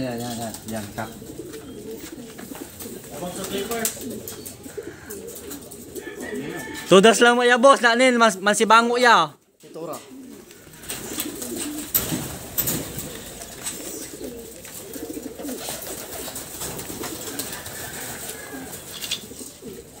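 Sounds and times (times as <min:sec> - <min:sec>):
pigeons cooing: 0:00.0 - 0:07.4, 0:09.4 - 0:20.0.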